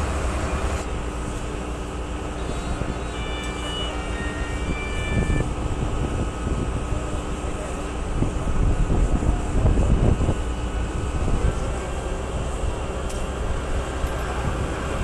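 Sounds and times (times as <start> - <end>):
faint distant sirens: 0.0 - 7.0
far-off engines: 0.0 - 15.0
wind rumble: 3.9 - 15.0.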